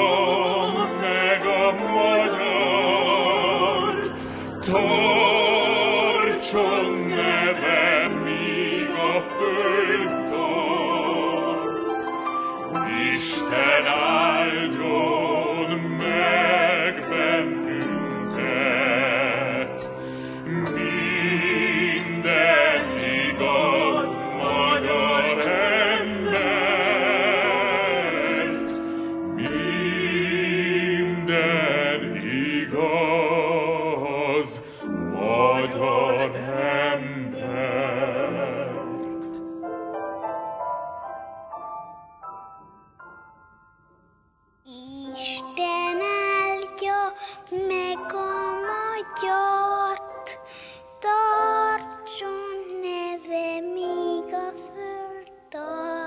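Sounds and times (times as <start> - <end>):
baritone singing a hymn: 0.0 - 12.0, 12.7 - 39.4
choir singing: 0.0 - 39.5, 45.1 - 50.4.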